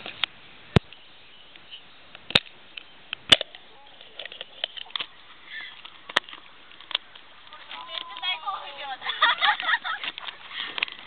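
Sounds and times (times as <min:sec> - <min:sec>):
faint steady hiss: 0:00.0 - 0:11.0.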